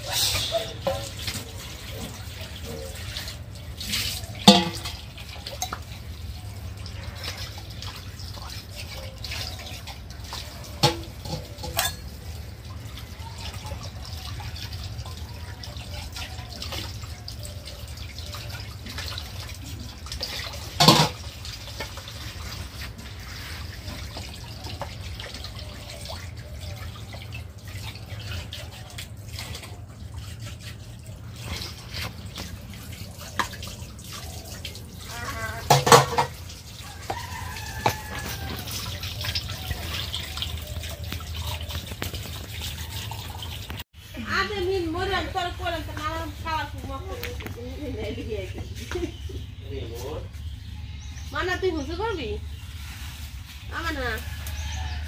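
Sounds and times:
tap water running into basin: 0.0s - 52.6s, 53.2s - 55.0s
metal pots knocking together: 0.1s - 3.3s, 4.3s - 6.1s, 9.0s - 12.4s, 20.1s - 22.8s, 35.1s - 40.3s.

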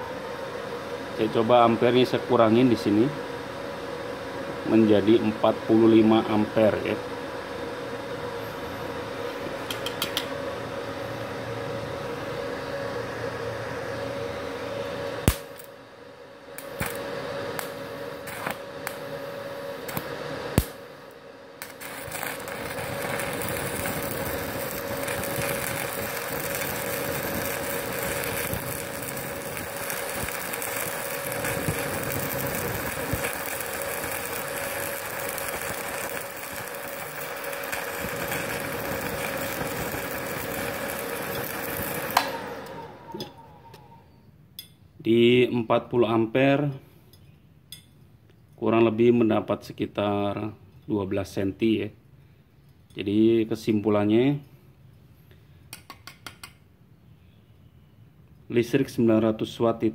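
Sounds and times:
sharp ticks of arc striking: 15.2s - 15.7s, 16.6s - 19.0s, 19.9s - 20.8s, 21.6s - 42.4s
welding arc crackling hiss: 15.2s - 15.8s, 16.5s - 43.2s.

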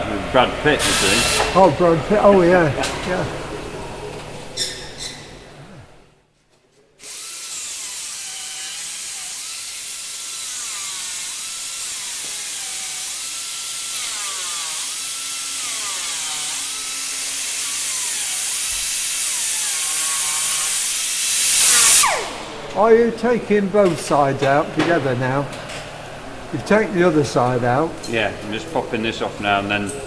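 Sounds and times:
air drill whining on metal: 0.7s - 2.2s, 7.0s - 22.8s.

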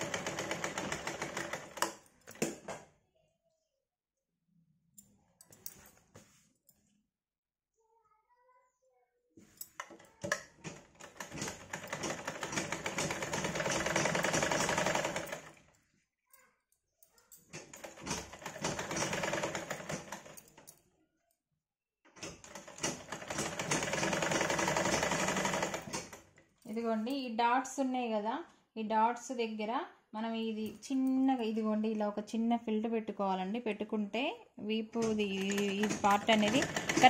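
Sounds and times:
sewing machine stitching: 0.0s - 2.8s, 9.8s - 15.7s, 17.5s - 20.4s, 22.1s - 26.3s, 35.0s - 37.0s.

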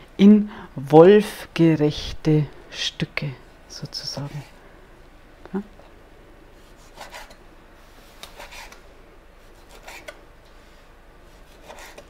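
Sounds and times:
knife slicing meat: 9.5s - 10.1s, 11.3s - 12.0s.

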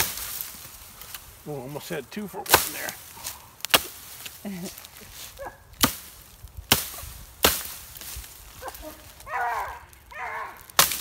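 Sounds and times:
axe chopping tree limbs: 0.0s - 1.3s, 2.4s - 8.5s, 10.5s - 11.0s.

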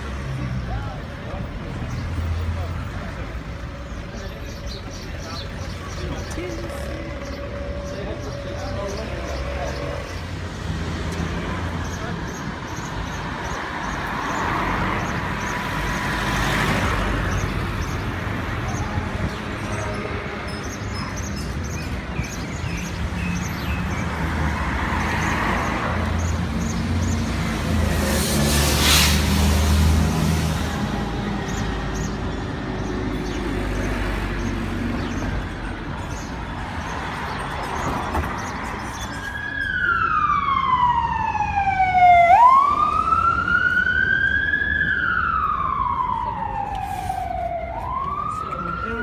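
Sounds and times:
city street traffic: 0.0s - 49.0s
emergency vehicle siren wailing: 39.1s - 49.0s.

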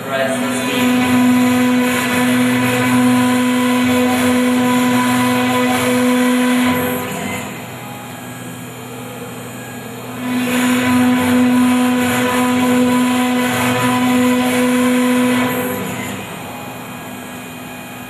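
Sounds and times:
router spindle whining: 0.0s - 18.0s
bit cutting wood: 0.2s - 7.6s, 10.2s - 16.4s.

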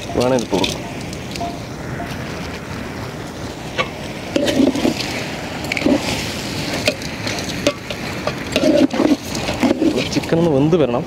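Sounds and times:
steady hiss: 0.0s - 11.0s
metal ladle scraping a pot: 3.8s - 10.2s.

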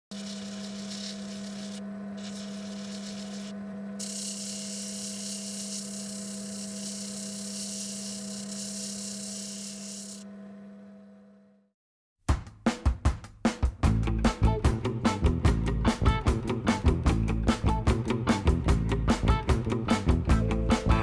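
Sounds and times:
pencil scratching spinning disc: 0.1s - 10.2s
drill press motor humming: 0.1s - 11.6s.

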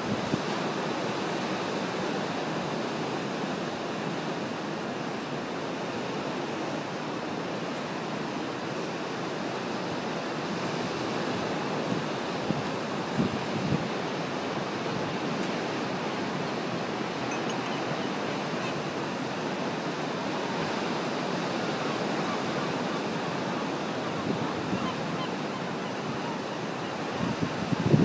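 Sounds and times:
wind buffeting microphone: 11.8s - 14.1s, 27.1s - 28.0s.

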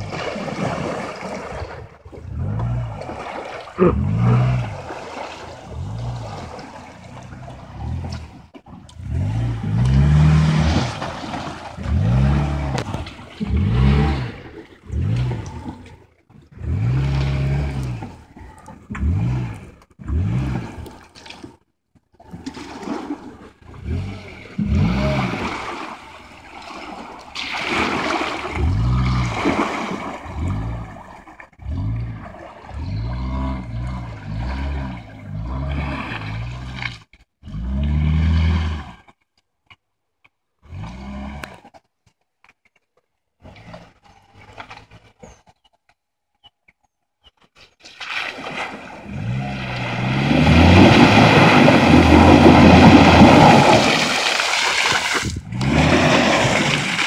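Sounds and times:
wheels splashing through water: 0.0s - 39.2s, 47.5s - 57.0s
car engine revving: 5.7s - 15.9s, 16.5s - 18.2s, 18.9s - 20.9s, 49.1s - 54.0s, 55.4s - 57.0s.

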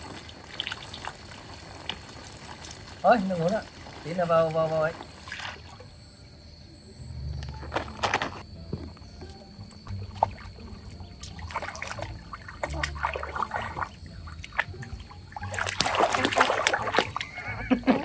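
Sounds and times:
water splashing in pool: 0.0s - 6.1s, 9.9s - 18.0s.

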